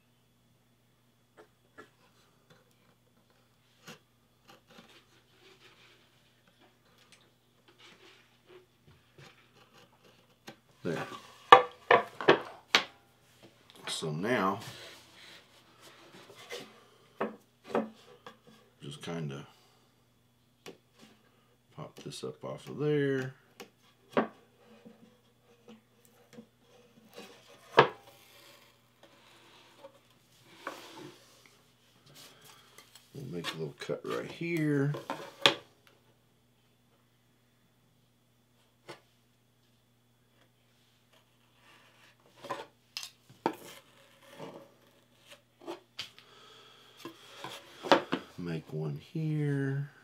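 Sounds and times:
board scraping on wooden table: 26.7 - 31.4.

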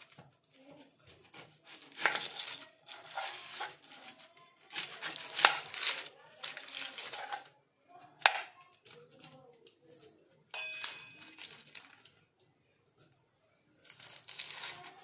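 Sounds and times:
knife peeling onion skin: 0.0 - 7.5, 13.8 - 15.0.

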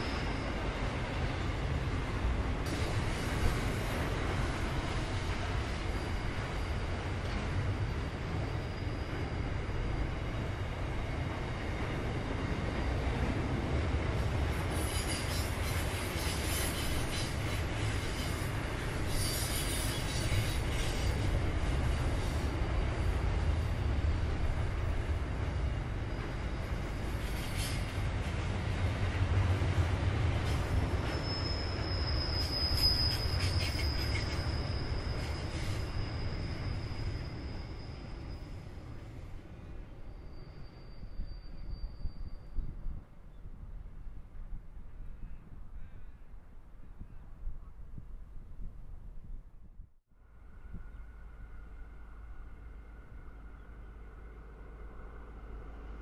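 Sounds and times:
high wheel squeal: 0.0 - 0.8, 8.3 - 10.0, 14.7 - 21.4, 30.5 - 39.2, 40.0 - 42.7
train wheels rumbling on rail: 0.0 - 45.3
metallic screech and clatter: 14.7 - 21.3, 27.2 - 28.0, 30.5 - 38.6.

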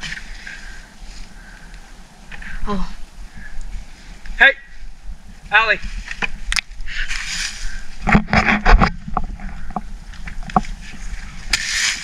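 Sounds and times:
garden tool digging into soil: 11.5 - 12.0.

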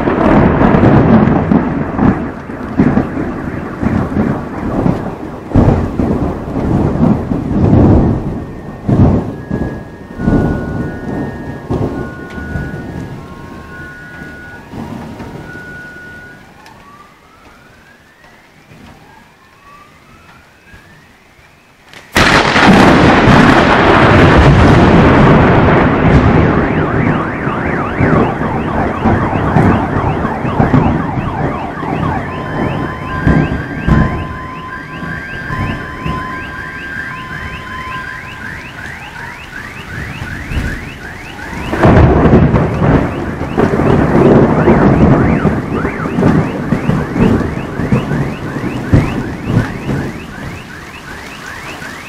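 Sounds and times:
close thunderclap: 0.0 - 17.0, 21.9 - 52.0
car alarms wailing: 0.0 - 52.0
thunder rumbling: 0.0 - 52.0
car alarm beeping: 8.2 - 21.2, 25.8 - 52.0.

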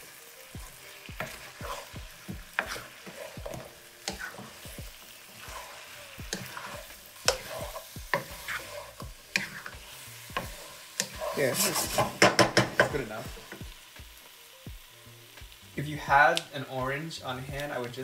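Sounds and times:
spatula scraping a skillet: 0.0 - 13.6
sauce sizzling: 0.0 - 18.0.

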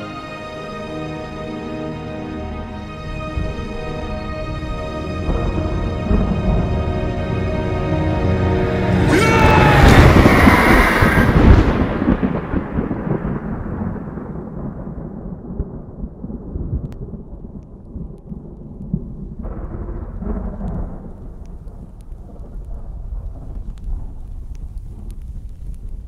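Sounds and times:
thunder rumbling: 4.6 - 26.0
faint crackles: 16.8 - 26.0.

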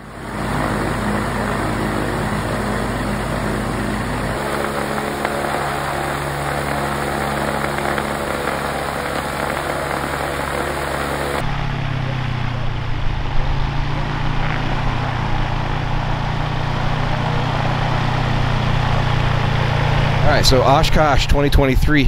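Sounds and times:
two-cylinder engine running: 0.0 - 21.8.

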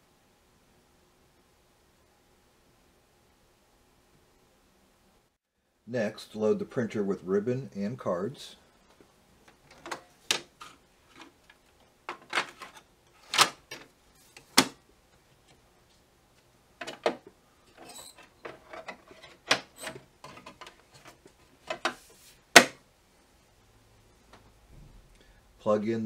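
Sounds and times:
plastic clicks and clunks: 9.5 - 14.8, 16.8 - 17.3, 18.4 - 22.0.

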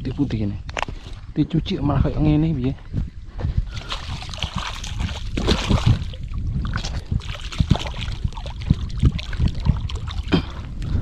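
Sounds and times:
water splashing and sloshing: 3.7 - 11.0.

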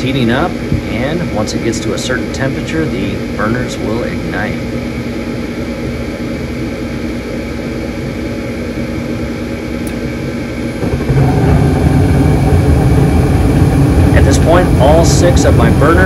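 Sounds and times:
furnace inducer motor hum: 0.0 - 16.0
gas burners rumbling: 0.0 - 16.0.

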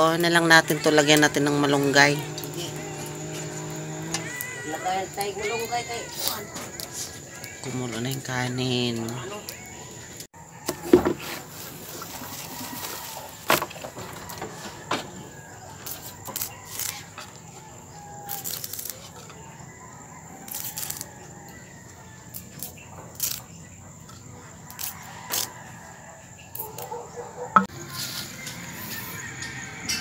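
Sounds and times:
leaves rustling: 0.0 - 17.5, 18.1 - 19.3
stems snapping: 15.8 - 17.1, 18.2 - 19.2, 22.3 - 23.5.

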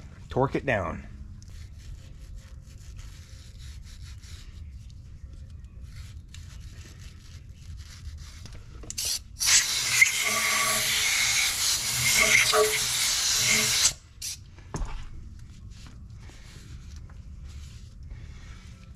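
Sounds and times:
compressed air hissing: 9.0 - 14.4
rag rubbing on metal: 9.4 - 14.0.

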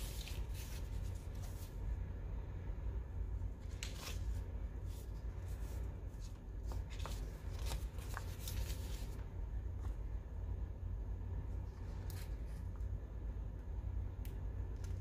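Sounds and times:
paper rustling and crinkling: 0.0 - 1.8, 3.6 - 10.0, 11.6 - 12.8
low steady hum: 0.0 - 15.0.

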